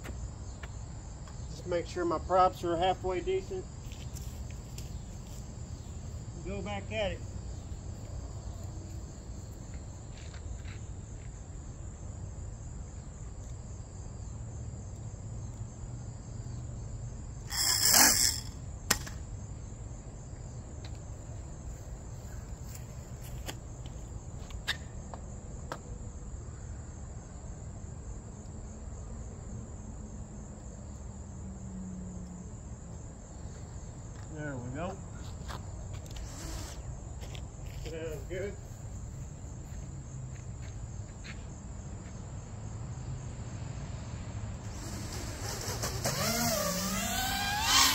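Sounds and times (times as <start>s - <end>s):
crickets chirping: 0.0s - 47.9s
sharp click: 18.9s - 19.2s.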